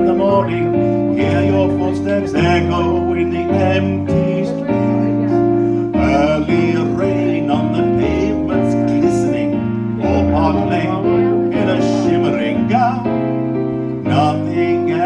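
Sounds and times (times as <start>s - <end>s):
backing music through a speaker: 0.0s - 15.0s.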